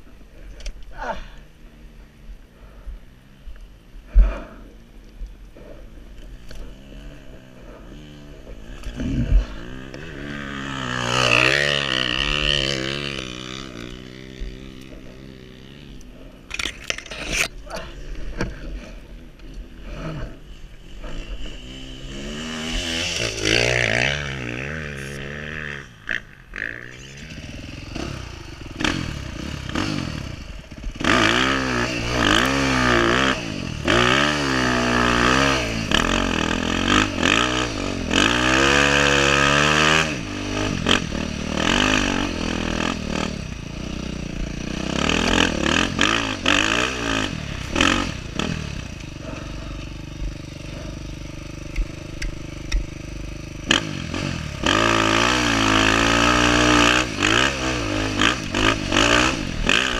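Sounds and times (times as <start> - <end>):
dirt bike engine revving: 6.2 - 59.9
brush scraping against bike: 16.6 - 17.8.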